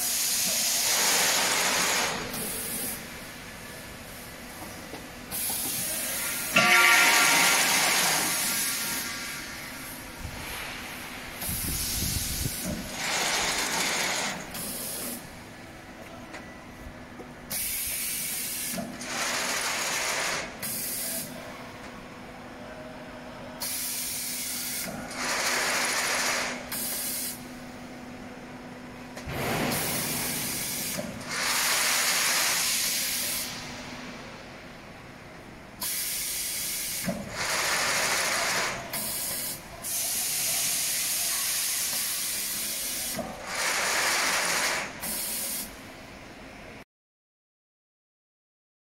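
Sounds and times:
pneumatic air hissing bursts: 0.0 - 15.3, 17.5 - 21.4, 23.6 - 27.4, 29.2 - 33.9, 35.8 - 45.8.

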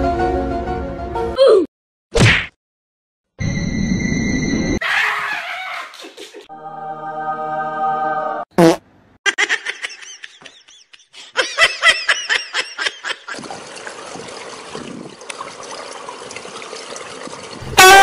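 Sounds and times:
person laughing: 9.3 - 13.5.

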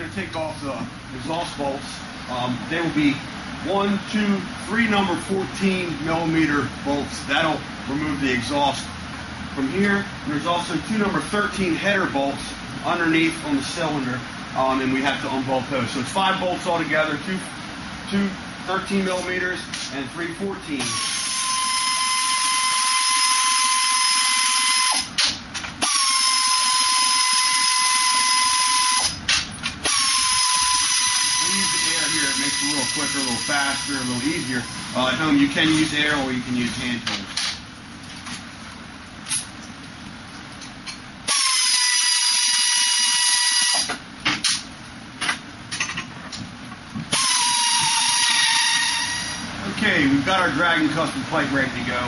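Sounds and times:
pneumatic wrench whine: 20.8 - 35.1, 41.3 - 44.6, 47.1 - 49.5.

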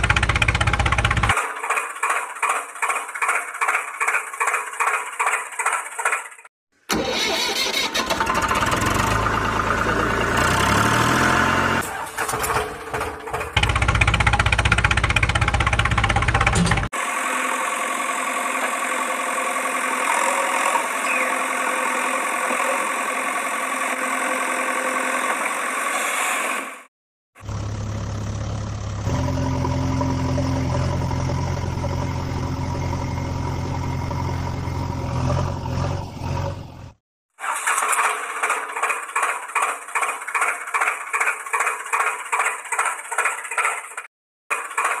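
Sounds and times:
deep engine running: 0.0 - 1.4, 13.5 - 25.6, 27.4 - 37.0
thin rhythmic engine chugging: 0.0 - 6.5, 38.1 - 45.0.

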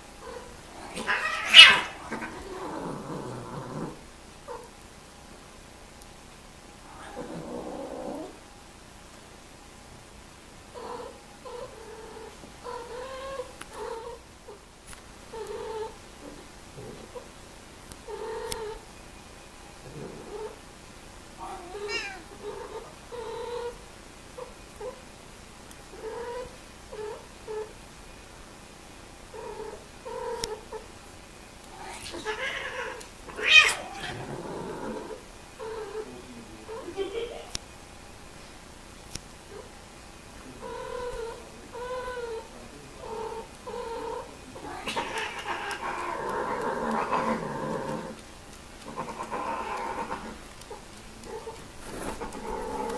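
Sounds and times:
cat yowling: 0.2 - 2.7, 21.4 - 23.8, 31.8 - 34.3, 40.6 - 48.2.

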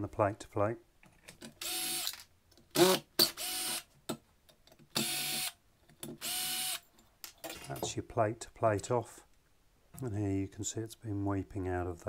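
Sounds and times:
cordless drill motor whine: 1.6 - 2.2, 3.4 - 3.8, 5.0 - 5.5, 6.2 - 6.8.

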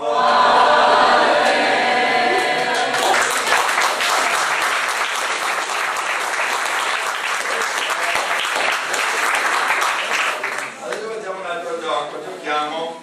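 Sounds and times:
audience applauding: 2.3 - 11.2.

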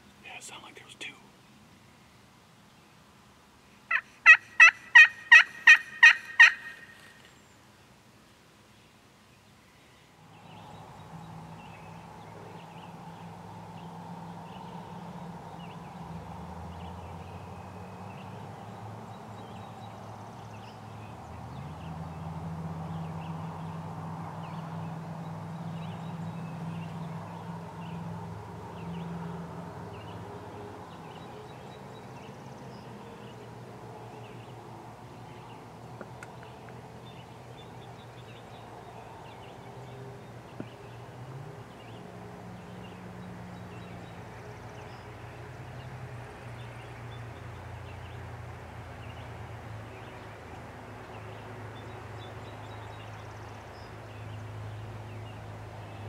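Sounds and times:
songbirds chirping: 0.0 - 56.0
turkey gobbling: 3.9 - 6.9.

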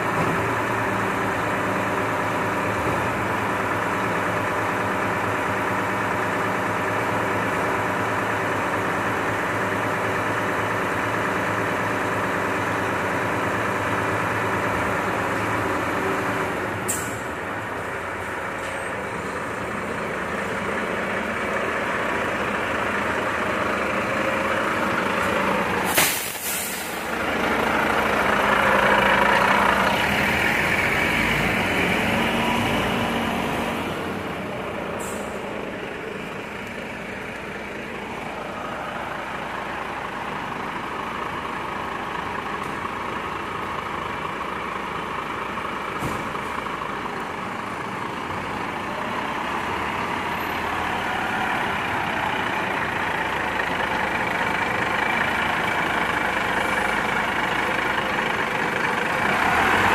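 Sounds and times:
diesel truck engine running: 0.0 - 59.9
air brakes hissing: 16.8 - 17.4, 25.8 - 27.1, 34.9 - 35.6.

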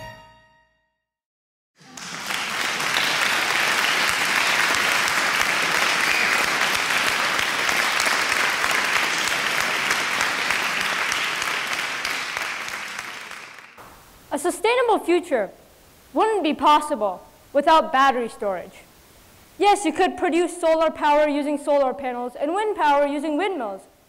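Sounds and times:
audience applauding: 1.8 - 13.8.

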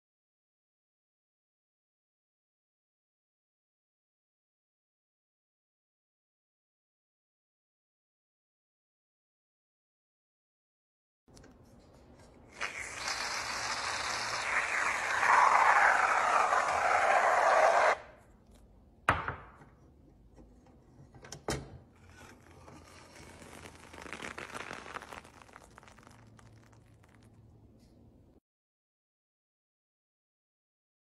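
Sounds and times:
cream squishing: 11.3 - 18.6, 22.0 - 27.9
whipped cream hissing from can: 12.5 - 18.0.

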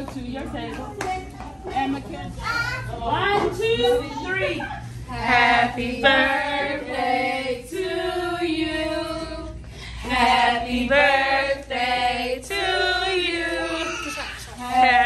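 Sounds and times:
women and children singing: 3.0 - 15.0.

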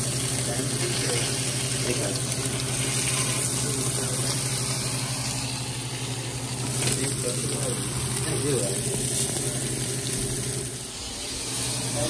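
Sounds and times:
fish sizzling in hot oil: 0.0 - 12.0.

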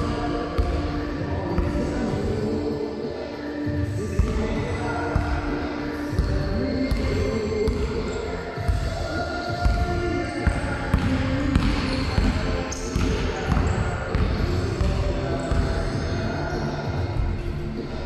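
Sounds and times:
basketball bouncing on wooden floor: 10.5 - 15.7.

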